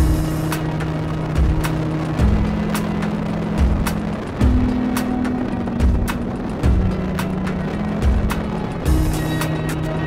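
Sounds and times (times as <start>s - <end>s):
held low notes: 0.0s - 10.0s
steady drum beat: 1.3s - 3.0s, 5.8s - 9.5s.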